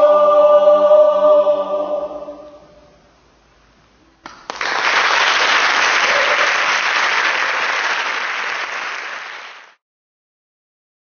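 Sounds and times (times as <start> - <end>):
audience applauding: 4.3 - 9.8.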